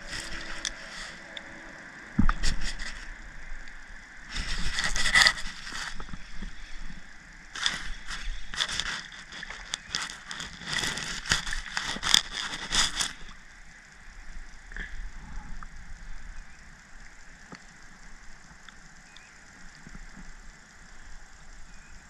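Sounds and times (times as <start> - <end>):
fishing reel clicking and scraping: 0.0 - 13.9.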